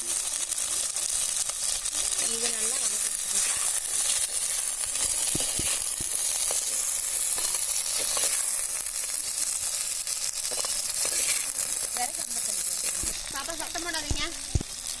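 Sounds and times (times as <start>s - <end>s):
shallots sizzling in oil: 0.0s - 15.0s
ladle scraping clay pot: 10.5s - 11.7s.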